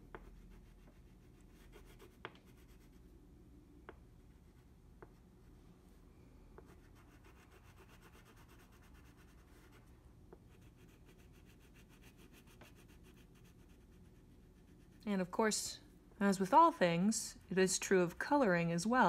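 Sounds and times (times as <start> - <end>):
crayon scribbling on paper: 6.7 - 9.8, 10.5 - 15.0.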